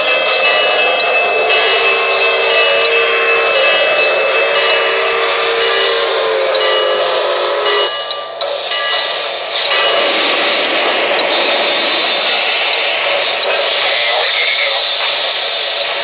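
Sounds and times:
model train steam whistle: 0.0s - 8.0s
model train running noise: 0.0s - 16.0s.

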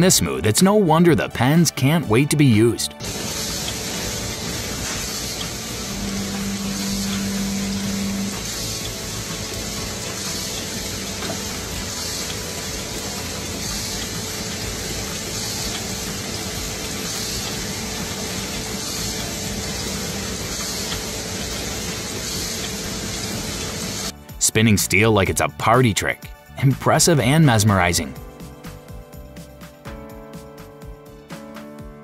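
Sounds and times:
capping machine rushing hiss: 3.0s - 24.4s.

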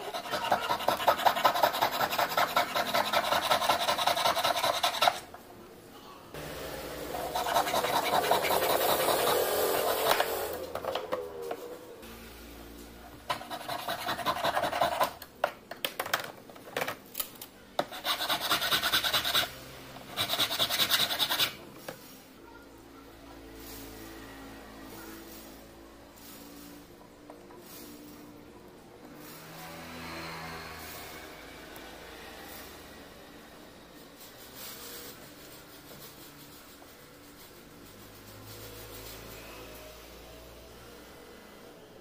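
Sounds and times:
piercing saw cutting metal: 0.0s - 5.2s, 6.7s - 10.7s
metal file rasping on silver: 0.0s - 5.3s, 7.1s - 10.5s, 13.3s - 15.2s, 17.9s - 19.5s, 20.1s - 21.6s
rubbing on metal: 0.0s - 5.3s, 7.2s - 10.5s.

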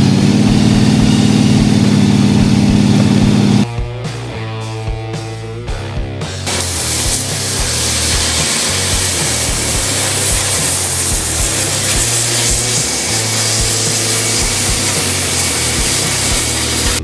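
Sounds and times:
music with beat and bass: 0.0s - 17.0s
plasma cutter hissing: 6.5s - 17.0s.

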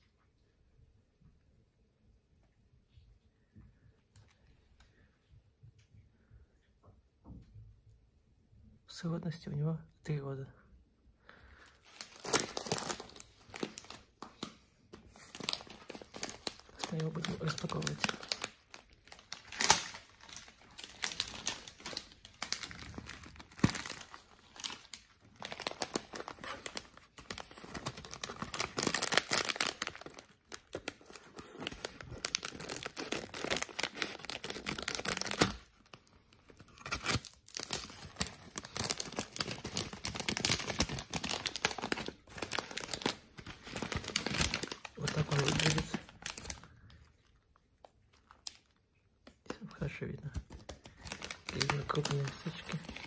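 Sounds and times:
plastic packet crinkling and tearing: 11.5s - 53.0s.

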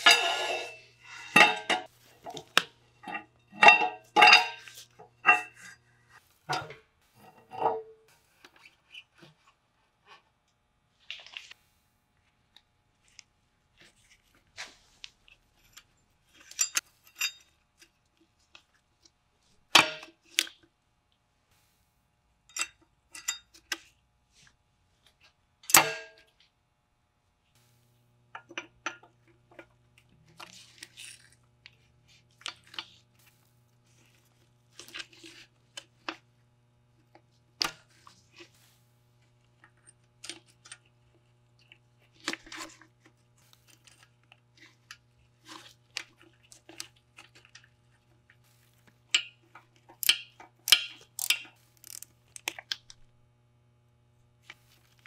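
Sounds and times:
metal parts clinking: 0.0s - 2.4s, 49.1s - 52.6s
metal clanks: 0.0s - 5.7s, 6.5s - 8.0s.

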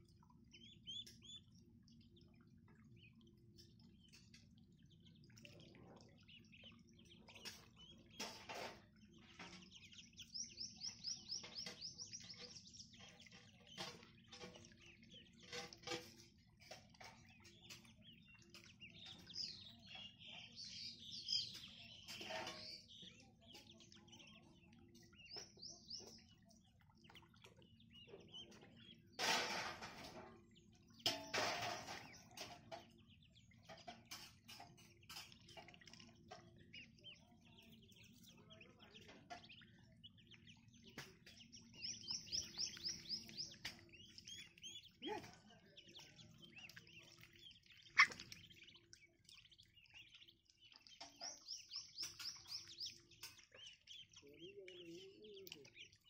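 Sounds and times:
ducklings peeping: 0.0s - 56.0s
small splashes in water: 21.4s - 56.0s.

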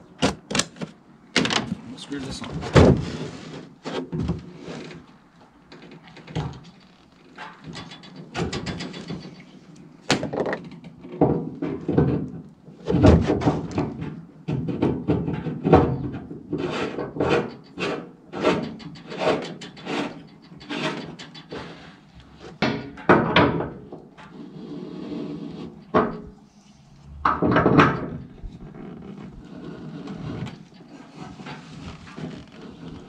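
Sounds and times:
tools knocking and clunking: 22.6s - 24.2s, 27.2s - 28.8s.

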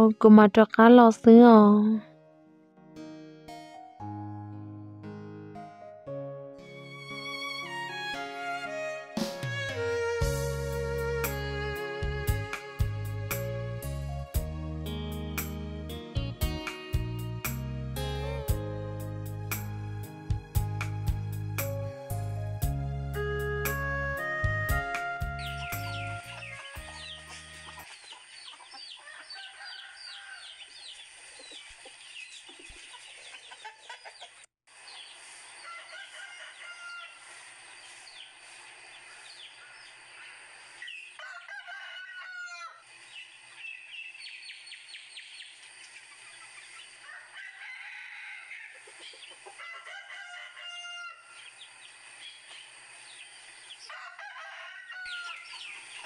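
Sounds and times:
small birds chirping: 25.3s - 35.7s, 37.6s - 41.2s, 43.0s - 47.1s, 51.3s - 53.9s, 55.1s - 56.0s
rooster crowing: 29.0s - 30.7s, 35.6s - 37.3s, 41.2s - 42.8s, 47.0s - 51.5s, 53.8s - 55.7s.

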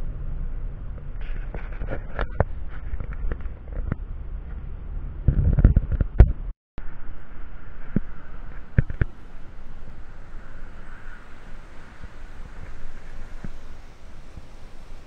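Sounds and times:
in-car road rumble: 0.0s - 15.0s
wind on microphone: 0.0s - 15.0s
river flowing: 6.8s - 15.0s
faint clicks: 7.2s - 15.0s.

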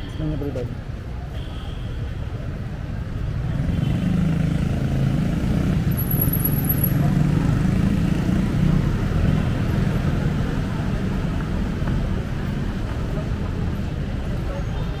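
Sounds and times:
vehicle engines running: 3.0s - 15.0s.

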